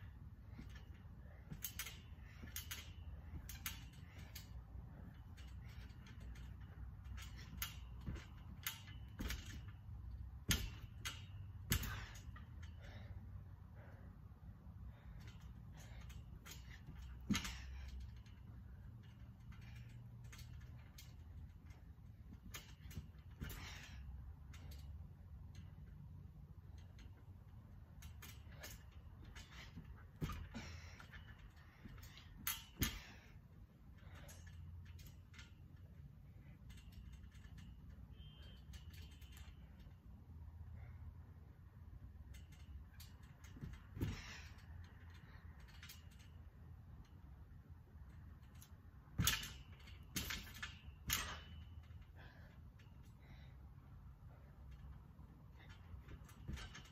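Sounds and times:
trampoline mat thumping: 0.0s - 12.7s, 15.2s - 18.4s, 19.1s - 24.0s, 28.0s - 33.4s, 42.9s - 46.2s, 48.4s - 52.5s, 55.5s - 56.9s
low steady hum: 0.0s - 56.9s
trampoline springs creaking: 0.0s - 56.9s.

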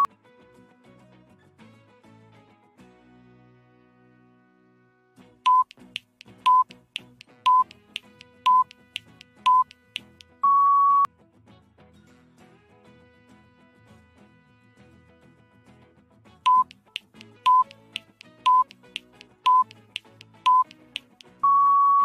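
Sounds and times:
short electronic beeps: 5.5s - 5.7s, 6.4s - 6.7s, 7.4s - 7.7s, 8.4s - 8.7s, 9.4s - 11.1s, 16.5s - 16.7s, 17.4s - 17.7s, 18.4s - 18.7s, 19.4s - 19.7s, 20.4s - 20.7s, 21.3s - 22.0s
longer higher beep: 7.5s - 7.7s, 8.4s - 8.7s, 9.5s - 9.7s, 10.4s - 11.1s, 16.5s - 16.7s, 17.5s - 17.7s, 18.5s - 18.7s, 19.5s - 19.7s, 20.5s - 20.7s, 21.4s - 22.0s.

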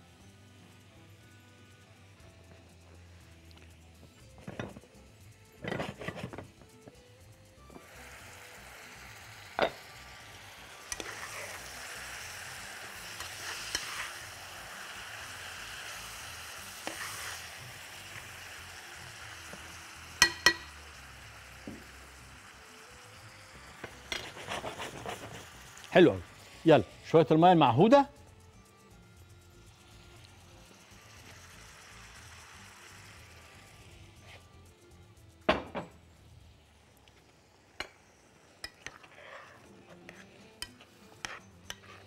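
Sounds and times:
meat sizzling in a pot: 0.0s - 42.0s
utensil clinking against pot: 10.9s - 11.6s, 20.2s - 20.8s, 38.6s - 42.0s.

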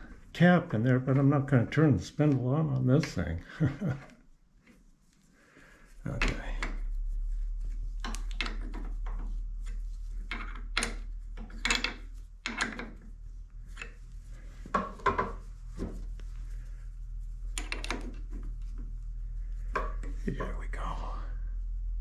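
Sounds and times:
steady low hum: 5.1s - 22.0s
metal clicks and scrapes: 13.6s - 14.0s.

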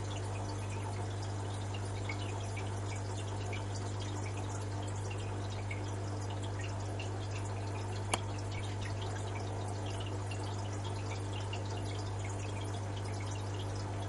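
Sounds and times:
water dripping and trickling: 0.0s - 14.0s.

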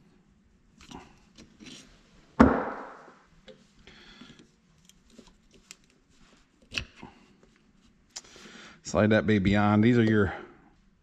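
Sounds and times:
metal tool knocking on workbench: 2.4s - 3.0s.

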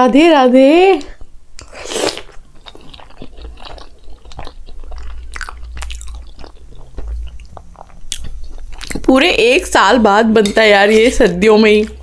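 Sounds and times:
person chewing moistly: 1.2s - 9.2s, 10.4s - 12.0s.

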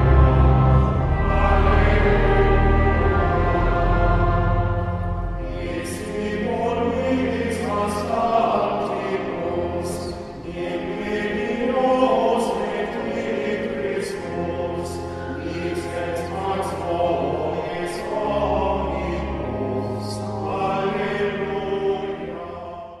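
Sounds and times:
sustained low bass notes: 0.0s - 7.5s
choir singing held chords: 0.0s - 23.0s.

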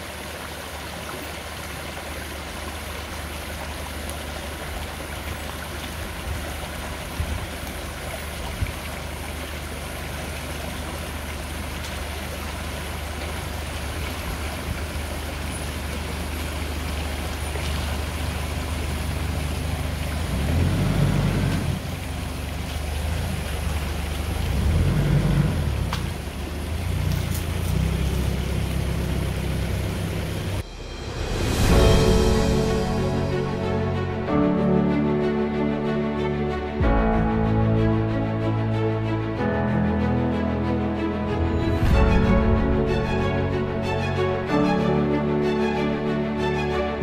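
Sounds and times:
vehicle engine rumble: 0.0s - 34.4s.

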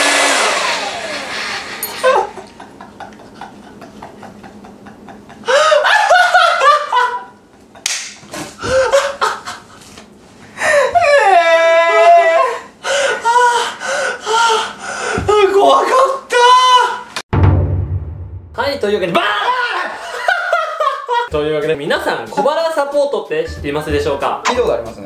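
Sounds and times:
men laughing hard: 2.0s - 7.8s, 8.4s - 10.0s, 19.4s - 21.3s.

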